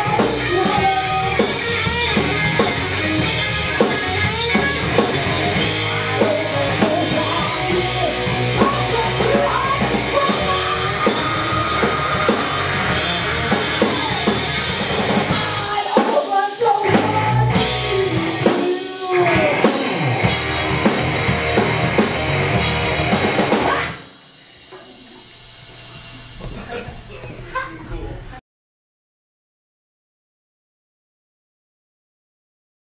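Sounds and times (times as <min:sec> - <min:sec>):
woman singing: 0:00.0 - 0:01.5, 0:06.0 - 0:12.6, 0:15.5 - 0:19.6
bass guitar: 0:00.0 - 0:16.0, 0:16.6 - 0:24.1
electric guitar: 0:00.0 - 0:26.6
drum kit: 0:00.0 - 0:27.0.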